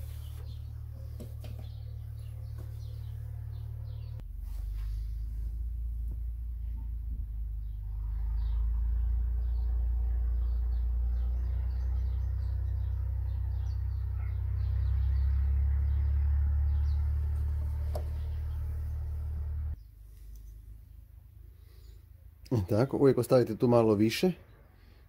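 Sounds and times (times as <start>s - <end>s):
birds chirping: 0.0s - 21.0s
low mechanical rumble with hum: 0.0s - 22.0s.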